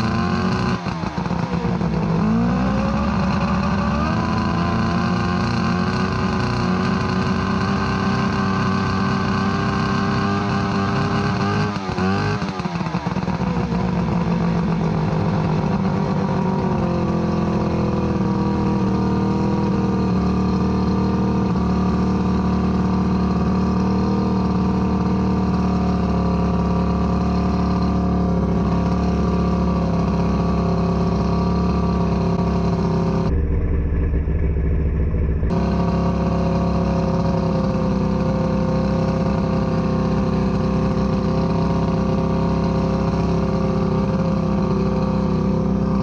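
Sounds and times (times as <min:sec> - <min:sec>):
outboard motor misfiring: 0:00.0 - 0:46.0.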